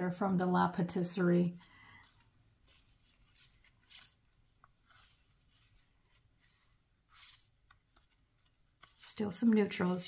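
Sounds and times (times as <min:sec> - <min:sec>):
paper pages turning: 0:01.7 - 0:10.0.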